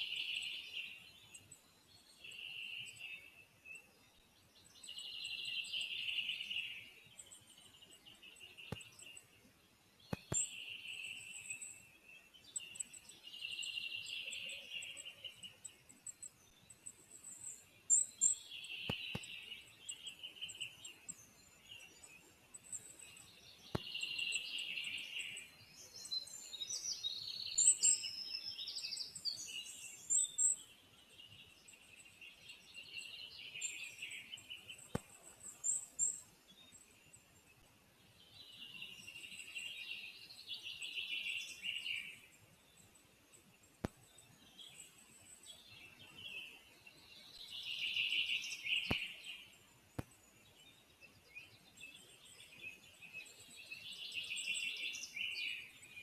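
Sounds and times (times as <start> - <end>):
songbird trilling song: 0.0 - 56.0
high ticking bird calls: 4.6 - 9.3, 10.0 - 37.2.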